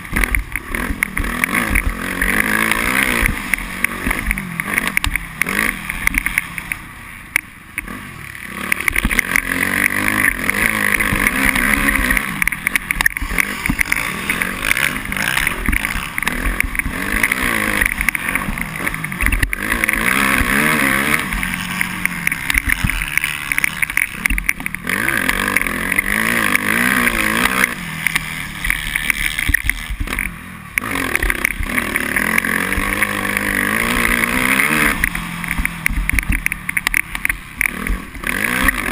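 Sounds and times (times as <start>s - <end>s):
motocross engine revving: 0.0s - 38.9s.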